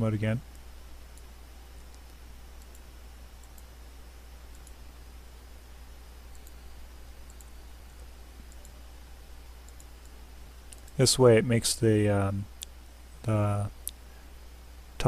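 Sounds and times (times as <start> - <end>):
computer mouse clicks: 0.5 - 3.7, 4.5 - 4.8, 6.3 - 6.6, 7.2 - 8.8, 9.6 - 11.0.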